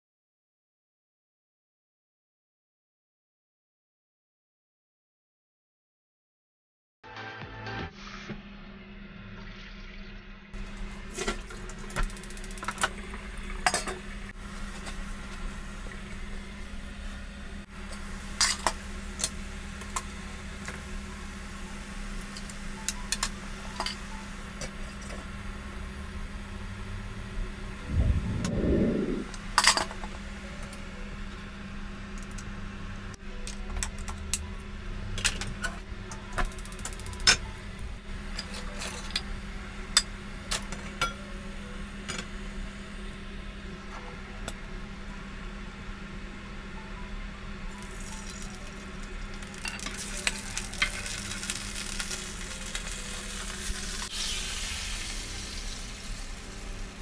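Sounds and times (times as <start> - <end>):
water boiling in a pot: 8.6 - 27.6, 47.8 - 57.0
steady low hum: 13.0 - 36.4
loud low burst: 27.8 - 29.4.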